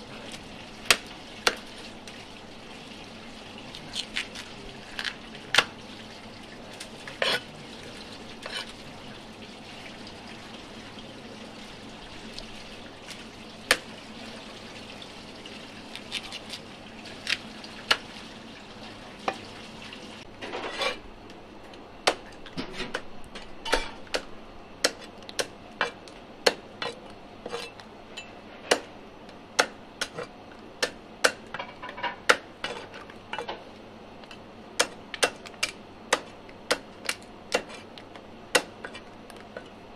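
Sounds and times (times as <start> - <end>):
steady background noise: 0.0 - 39.9
knife scrape: 7.1 - 7.5, 8.4 - 8.8, 20.4 - 21.0, 26.8 - 27.8.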